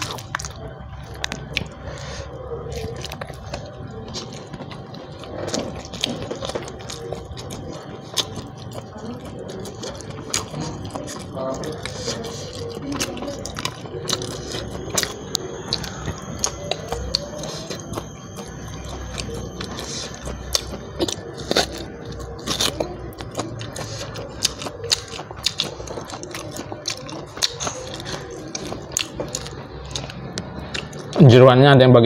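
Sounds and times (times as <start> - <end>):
teeth and mouth clicks: 0.0 - 31.2
chewing and crunching: 0.0 - 31.4.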